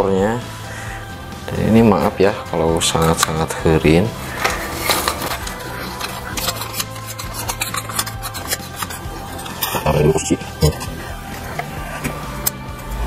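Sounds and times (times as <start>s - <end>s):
metal scraping on metal: 2.7s - 13.0s
metal parts clinking: 4.3s - 11.0s.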